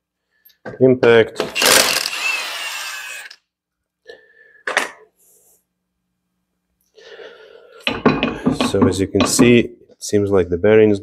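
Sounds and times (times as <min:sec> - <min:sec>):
impact wrench whirring: 0:01.4 - 0:03.4.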